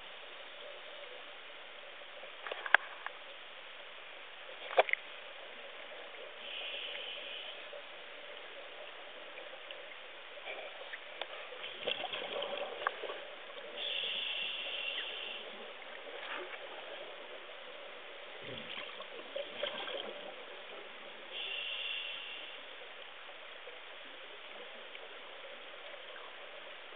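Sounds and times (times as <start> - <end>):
muffled underwater noise: 0.0 - 26.9
bursts of high hiss: 13.8 - 15.6, 21.3 - 22.7.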